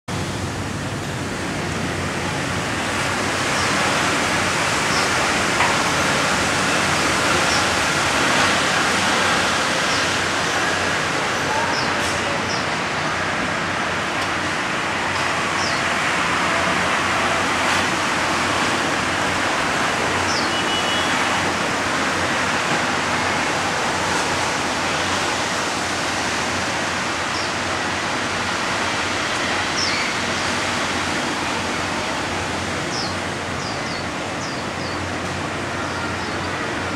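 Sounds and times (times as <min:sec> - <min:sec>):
outdoor background noise: 0:00.1 - 0:36.9
small birds chirping: 0:32.9 - 0:35.0.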